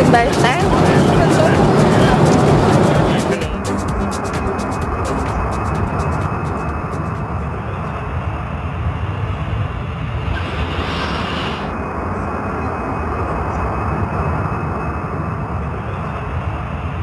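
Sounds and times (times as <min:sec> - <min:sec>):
jet airliner drone: 0:00.0 - 0:17.0
brief hiss: 0:10.2 - 0:11.8.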